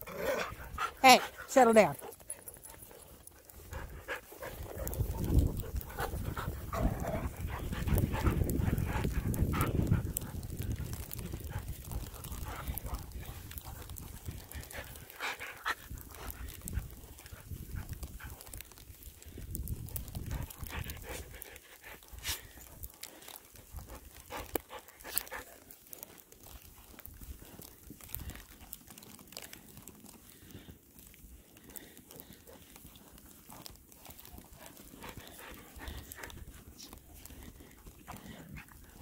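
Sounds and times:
dogs panting: 0:00.0 - 0:39.0.

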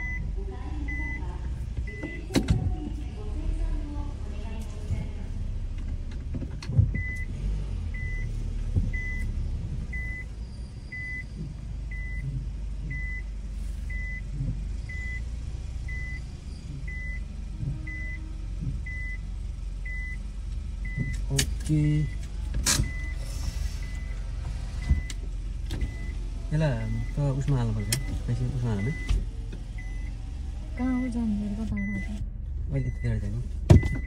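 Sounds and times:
reverse warning beeps: 0:00.0 - 0:01.2, 0:01.8 - 0:02.4, 0:07.0 - 0:07.3, 0:07.9 - 0:15.3, 0:15.9 - 0:20.2, 0:20.8 - 0:21.3, 0:22.9 - 0:24.2, 0:24.8 - 0:25.2, 0:25.8 - 0:26.2, 0:26.8 - 0:30.2, 0:30.8 - 0:32.2, 0:32.8 - 0:34.0
low rumble of car reversing: 0:00.0 - 0:34.0
thump: 0:33.7 - 0:34.0.

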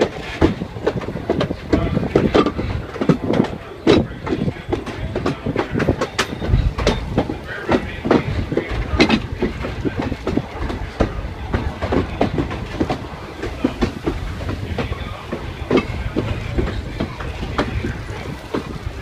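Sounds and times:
railroad car rumbling on track: 0:00.0 - 0:19.0
wheels clicking and rattling: 0:00.0 - 0:19.0.

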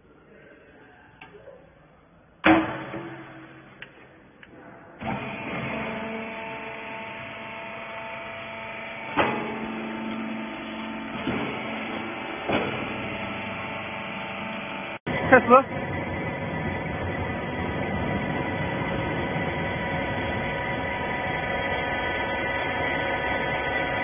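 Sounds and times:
loud metal clank: 0:02.4 - 0:03.8
hydraulic pump motor humming: 0:05.0 - 0:24.0.

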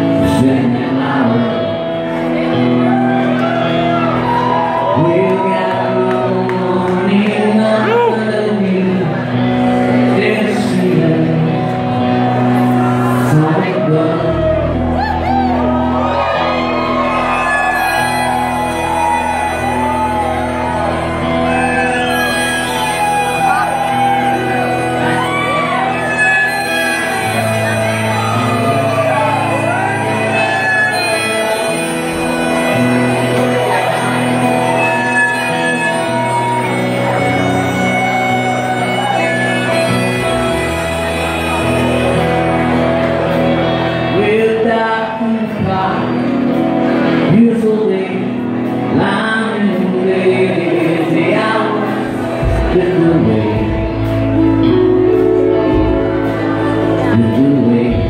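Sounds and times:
rock band playing: 0:00.0 - 0:58.0
sustained bass notes: 0:00.0 - 0:58.0
electric guitar bent notes: 0:14.5 - 0:44.2.

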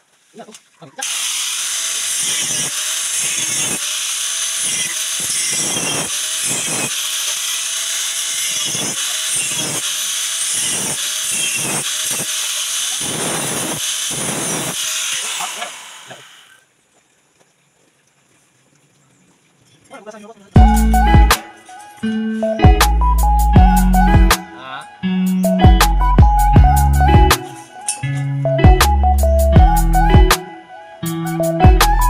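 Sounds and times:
angle grinder cutting metal: 0:01.0 - 0:16.6.

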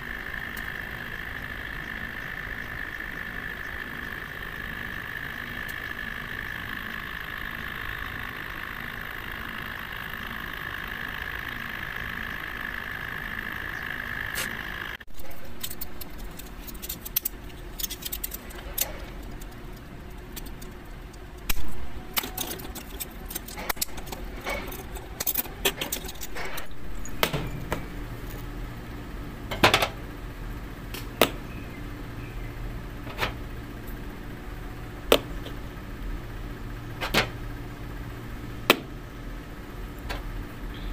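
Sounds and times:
steady background hum: 0:00.0 - 0:40.9
plastic parts clicking and knocking: 0:15.2 - 0:28.4.

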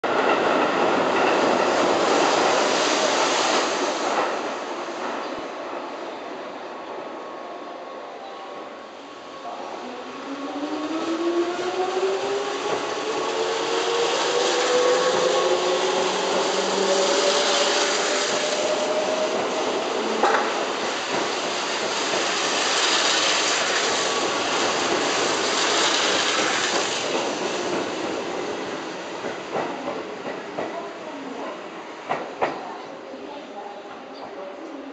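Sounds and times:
train wheels clattering on rails: 0:00.1 - 0:05.4, 0:13.6 - 0:32.8.

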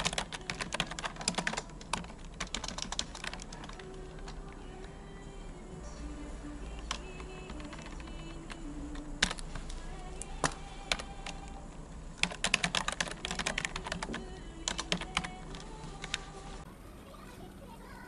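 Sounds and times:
typing on a keyboard: 0:00.0 - 0:04.9, 0:06.7 - 0:09.7, 0:10.4 - 0:11.6, 0:12.2 - 0:16.3.

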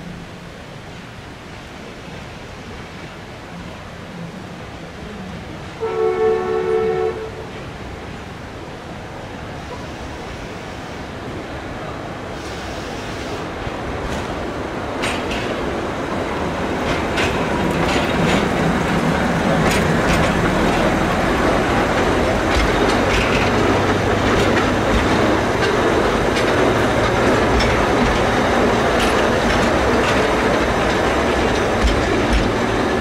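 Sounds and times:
train wheels clattering on rails: 0:12.4 - 0:33.0.

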